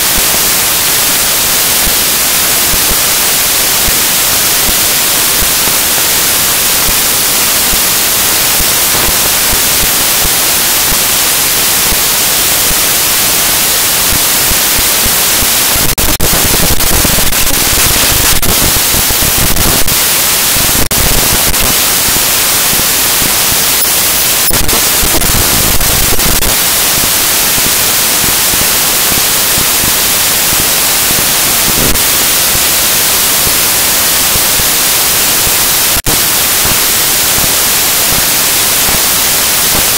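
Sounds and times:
static hiss: 0.0s - 39.9s
sharp clicks and crackles: 14.0s - 29.9s.

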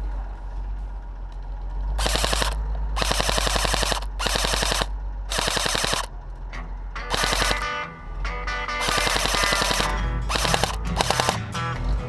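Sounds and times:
airsoft rifle full-auto bursts: 2.0s - 6.1s, 7.1s - 7.8s, 8.8s - 11.4s.

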